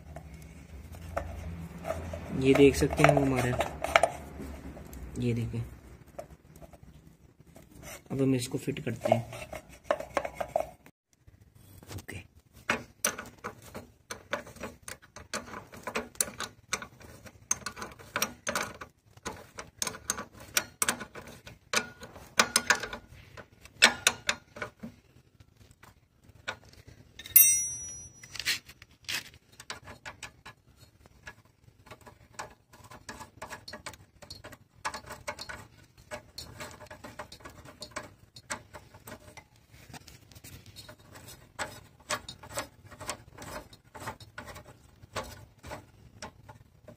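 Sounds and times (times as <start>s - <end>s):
sharp ringing metal clink: 27.2s - 28.3s.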